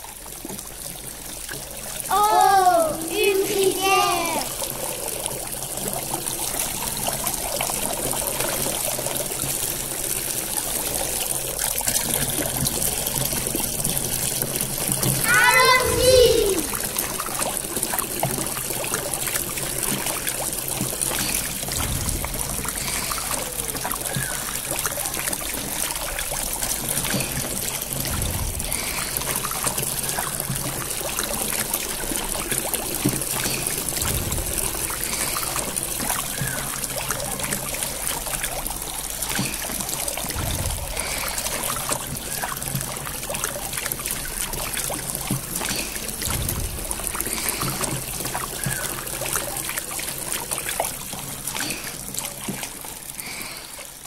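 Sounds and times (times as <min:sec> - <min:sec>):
water pouring and splashing: 0:00.0 - 0:54.0
low thump: 0:21.8 - 0:23.4, 0:28.0 - 0:29.2, 0:34.0 - 0:34.9, 0:40.3 - 0:41.6, 0:46.2 - 0:47.3.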